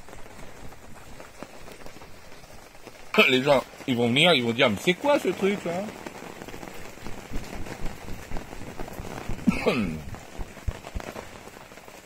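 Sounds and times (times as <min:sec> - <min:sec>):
rain pattering on canvas awning: 0:00.0 - 0:12.0.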